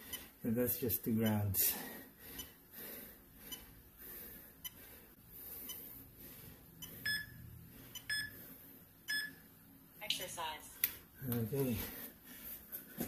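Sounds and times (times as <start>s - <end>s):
short electronic beeps: 7.0s - 7.4s, 8.0s - 8.4s.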